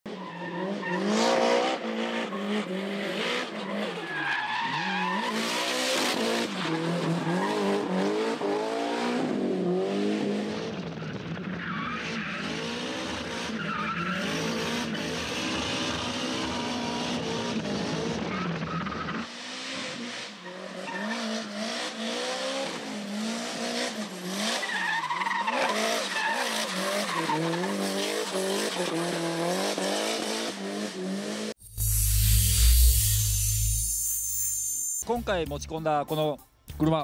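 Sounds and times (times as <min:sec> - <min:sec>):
car engine revving hard: 0:05.1 - 0:10.8.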